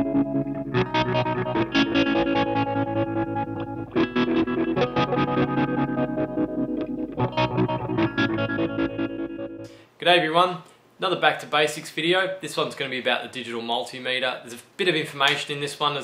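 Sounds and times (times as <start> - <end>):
distorted electric guitar riff: 0.0 - 9.8.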